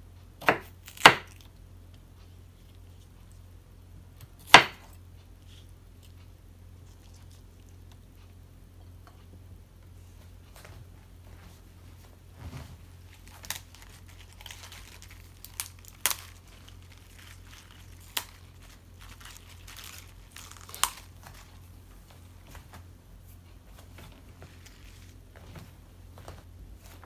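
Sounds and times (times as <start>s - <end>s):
steady low hum: 0.0s - 27.0s
lettuce leaves rustling: 12.4s - 21.7s, 24.0s - 27.0s.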